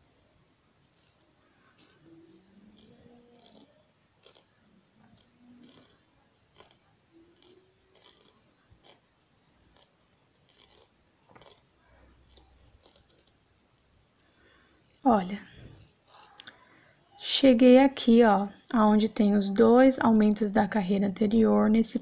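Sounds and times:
crochet hook clicks and scratches: 0.9s - 14.2s, 14.8s - 17.2s.

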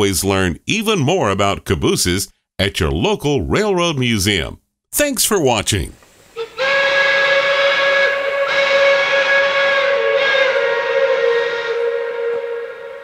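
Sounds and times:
steam locomotive whistle: 6.4s - 13.0s.

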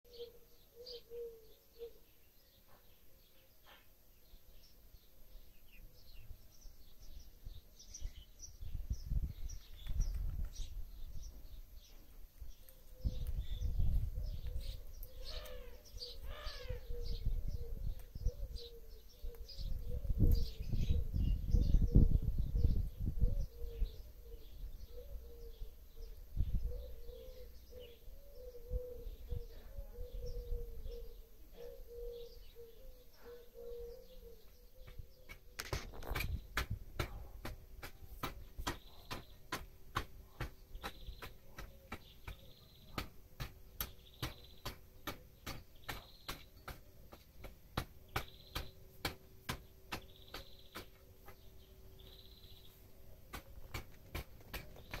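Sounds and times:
small birds chirping: 0.1s - 55.0s
wind rumbling on microphone: 7.1s - 27.4s, 35.7s - 37.4s.

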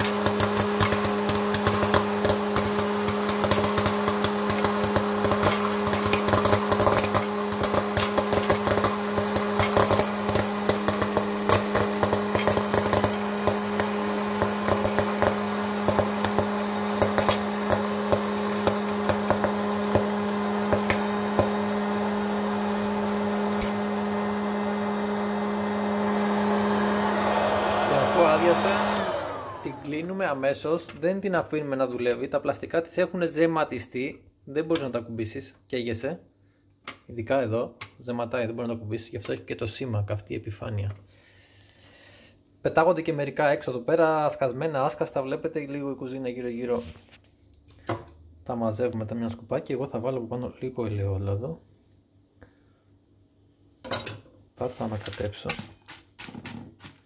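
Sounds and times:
popcorn kernels popping: 0.0s - 24.0s
popcorn machine fan humming: 0.0s - 30.9s.

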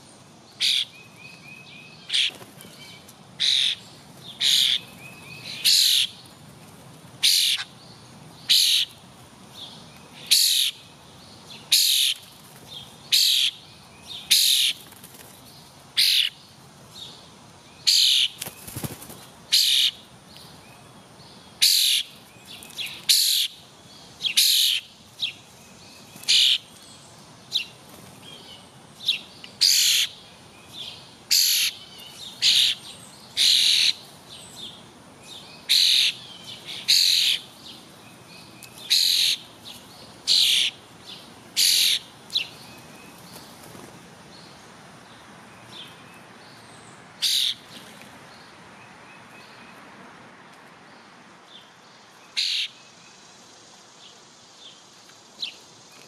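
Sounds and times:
songbird high calls: 0.6s - 6.3s, 7.2s - 7.8s, 8.4s - 9.0s, 9.6s - 12.2s, 13.1s - 14.8s, 16.0s - 16.5s, 17.8s - 18.4s, 19.5s - 20.1s, 21.6s - 26.7s, 27.5s - 43.2s, 46.9s - 47.7s, 52.2s - 53.2s.

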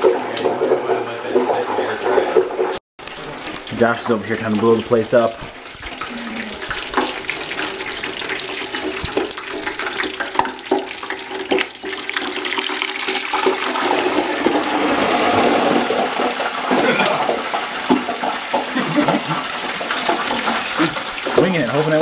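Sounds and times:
food sizzling in deep fryer: 3.0s - 22.0s.

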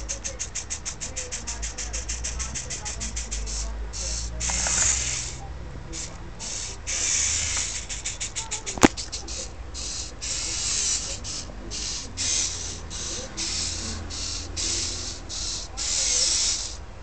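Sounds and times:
robot motors whirring: 4.1s - 5.4s
sharp click: 8.7s - 9.2s.

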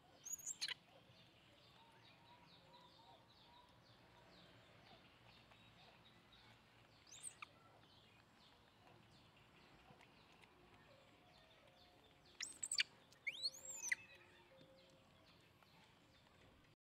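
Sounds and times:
birds chirping: 0.0s - 16.8s
faint background noise: 0.0s - 16.8s.

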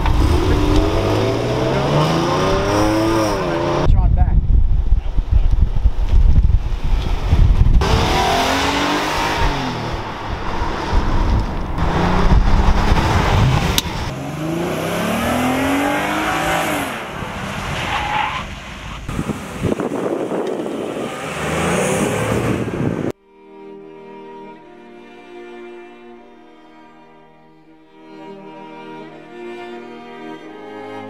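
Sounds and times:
car engine revving: 0.0s - 3.9s, 7.1s - 23.2s.

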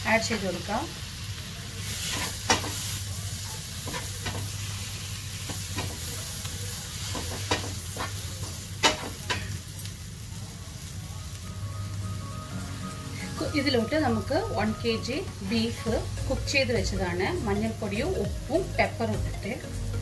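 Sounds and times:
food sizzling in a wok: 0.0s - 20.0s.

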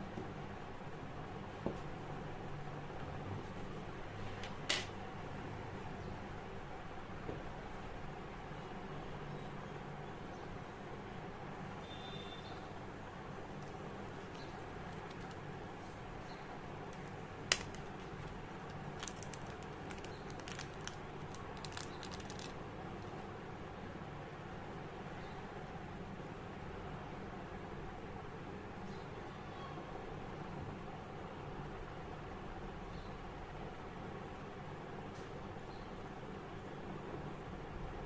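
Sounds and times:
faint background noise: 0.0s - 38.0s
plastic bag crinkling: 13.6s - 15.5s, 16.9s - 22.6s
tap on plastic bag: 16.9s - 18.4s.

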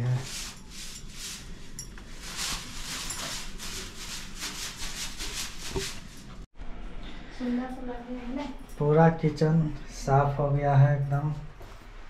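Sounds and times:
broom swishing against wall: 0.0s - 6.5s.

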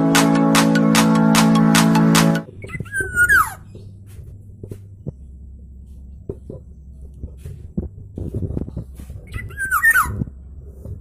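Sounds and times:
soft low thumps: 2.5s - 11.0s.

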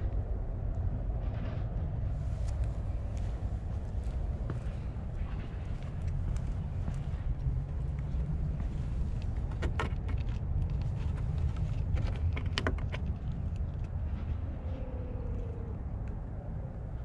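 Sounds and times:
wind rumbling on microphone: 0.0s - 17.0s
cat scratching wooden wall: 9.3s - 13.6s.

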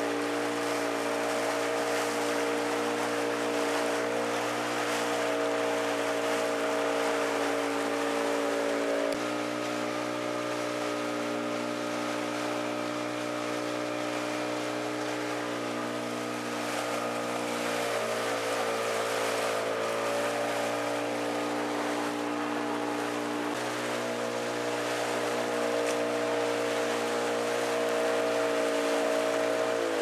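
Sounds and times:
boat engine droning: 0.0s - 30.0s
wind: 0.0s - 30.0s
water hissing: 11.1s - 30.0s.

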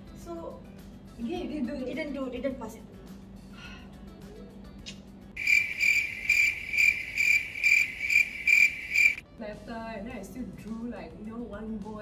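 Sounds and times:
cricket chirping: 5.4s - 9.2s.

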